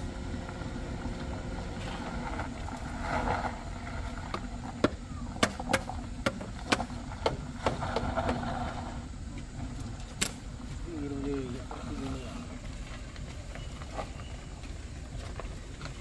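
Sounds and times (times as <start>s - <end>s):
vehicle engine rumbling: 0.0s - 16.0s.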